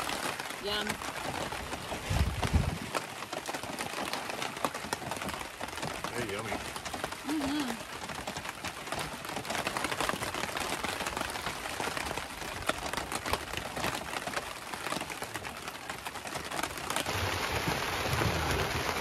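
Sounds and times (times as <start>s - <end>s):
heavy rain on a tarp: 0.0s - 19.0s
low rumbling: 17.0s - 19.0s.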